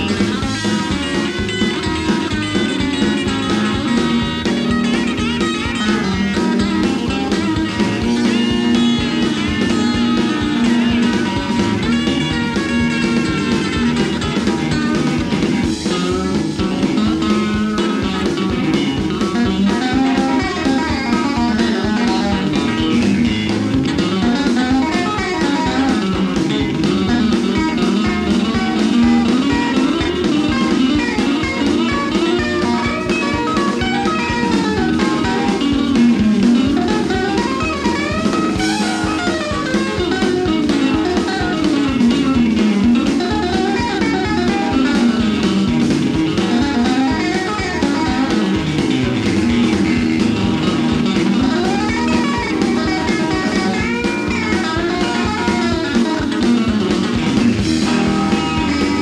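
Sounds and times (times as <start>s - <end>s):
drums with steady beat: 0.0s - 59.0s
electric guitars: 0.0s - 59.0s.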